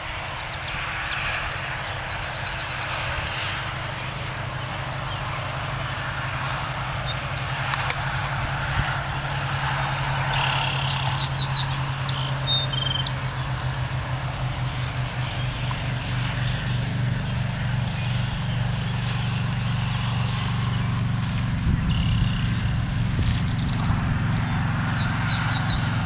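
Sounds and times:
low engine hum: 0.0s - 26.0s
songbirds chirping: 0.0s - 26.0s.

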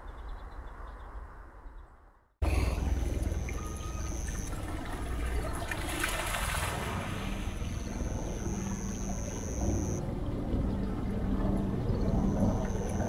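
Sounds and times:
thin high tone: 2.4s - 4.8s, 7.6s - 10.0s
water splashing into pond: 2.4s - 10.0s.

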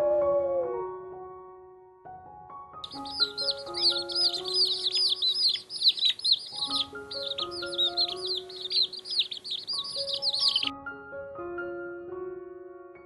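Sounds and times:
slow background music: 0.0s - 13.0s
chicks peeping: 2.8s - 10.7s.

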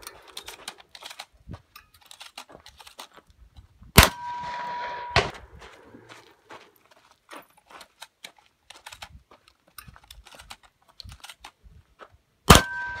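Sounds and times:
shells clicking into shotgun: 0.0s - 3.2s, 7.5s - 11.6s
shotgun blast: 4.0s - 5.5s, 12.5s - 13.0s
steel target ringing: 4.0s - 5.5s, 12.5s - 13.0s.

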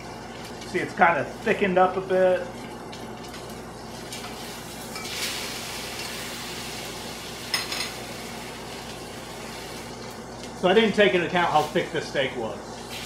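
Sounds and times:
steak sizzling in a skillet: 3.4s - 10.0s, 12.8s - 13.0s.

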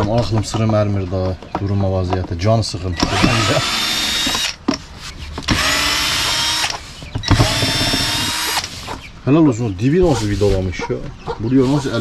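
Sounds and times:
cordless drill whining: 3.0s - 4.6s, 5.4s - 8.8s.

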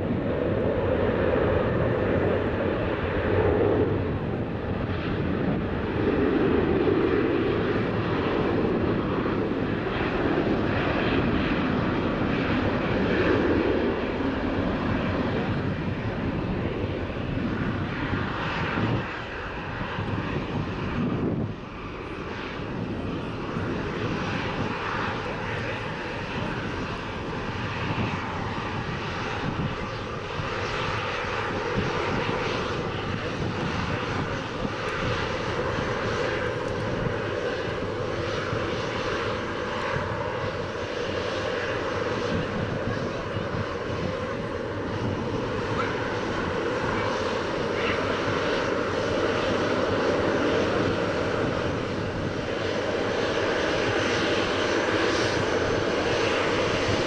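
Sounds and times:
jet engines roaring: 0.0s - 57.0s.

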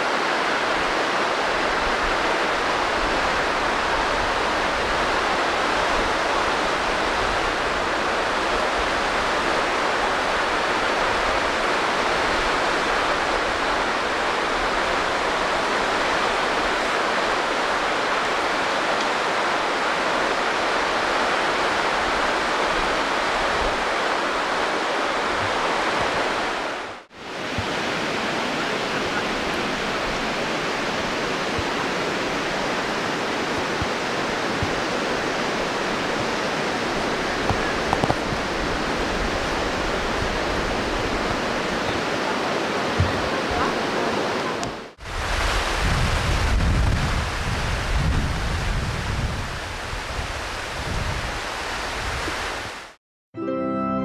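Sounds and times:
stream water rushing: 0.0s - 53.0s.

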